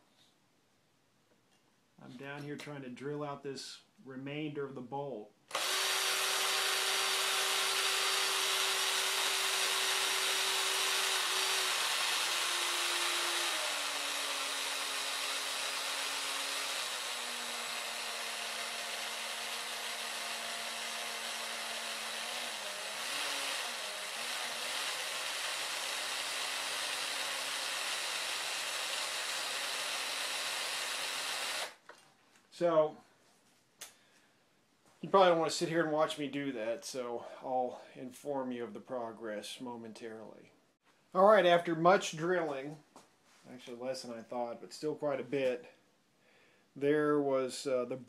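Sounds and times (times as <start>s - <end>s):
cordless drill whining: 5.5s - 32.0s.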